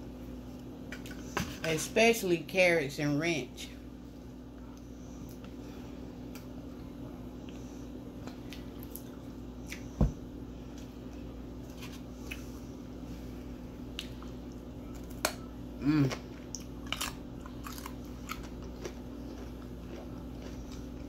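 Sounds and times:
chewing and crunching carrots: 4.4 - 10.0, 13.8 - 21.0
person humming: 15.8 - 16.2.

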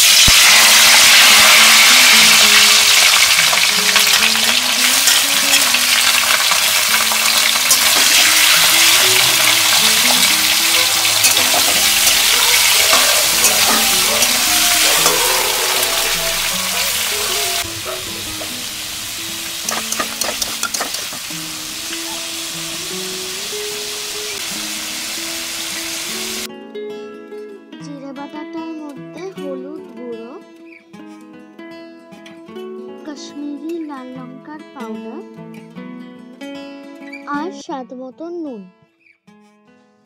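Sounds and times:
prawns sizzling in hot oil: 0.0 - 26.5.

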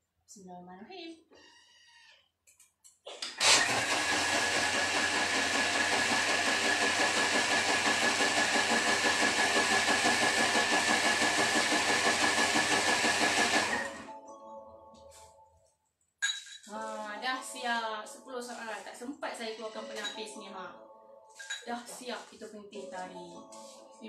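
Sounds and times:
blender motor whine: 3.3 - 14.1
liquid churning in a jug: 3.5 - 14.0.

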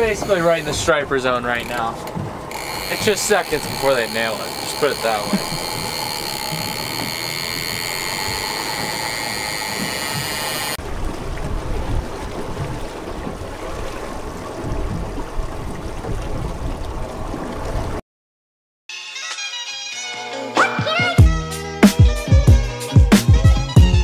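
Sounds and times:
outboard motor whining: 0.0 - 10.8
water noise: 0.0 - 18.0
wind and water rushing: 0.0 - 18.0.

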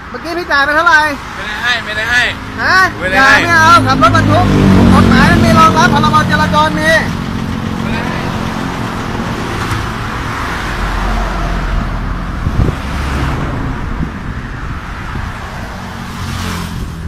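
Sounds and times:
road and traffic noise: 0.0 - 17.0
vehicle engine running: 2.8 - 10.9.

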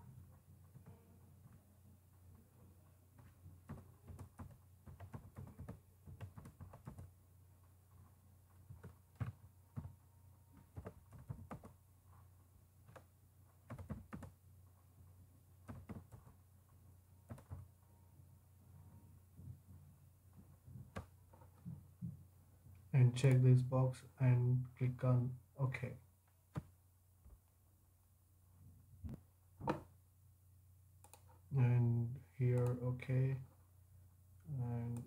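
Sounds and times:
keyboard keys clicking: 3.6 - 7.1, 8.7 - 10.0, 10.6 - 11.8, 12.9 - 14.4.

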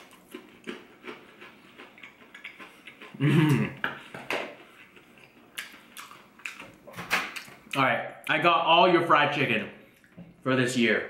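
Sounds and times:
person humming mmm: 3.2 - 3.8.

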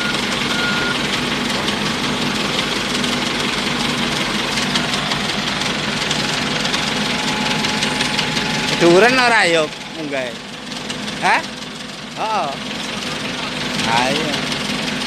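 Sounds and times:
reversing beep: 0.0 - 1.0, 6.2 - 10.2
diesel excavator engine clattering: 0.0 - 15.0.

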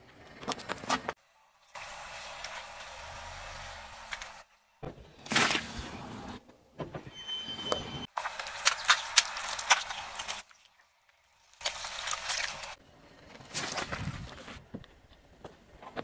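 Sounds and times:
crackling popping of squashed gloves: 8.2 - 10.6.

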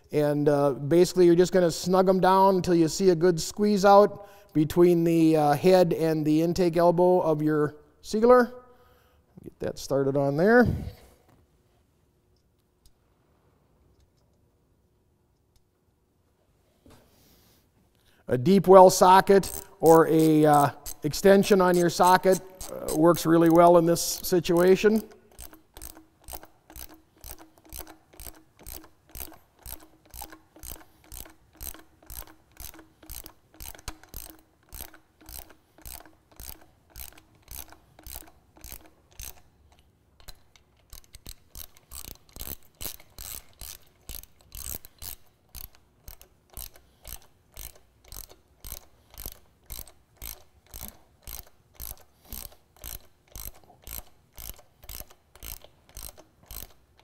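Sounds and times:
socket ratchet clicking: 18.6 - 57.0.

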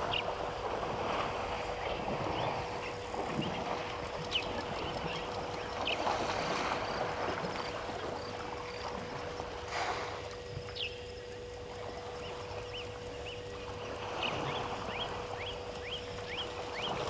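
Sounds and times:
faint steady hum: 0.0 - 17.0
bird chirps: 10.7 - 11.1, 12.2 - 17.0.

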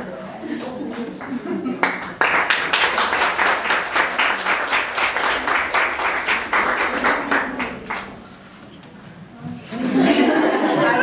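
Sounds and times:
audience applauding: 0.9 - 8.3.

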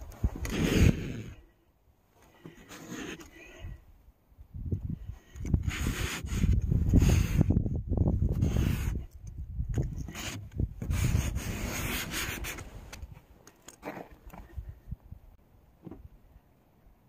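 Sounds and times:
pen scraping frost on glass: 2.5 - 3.6, 5.5 - 7.5, 8.3 - 9.2, 9.8 - 12.7.

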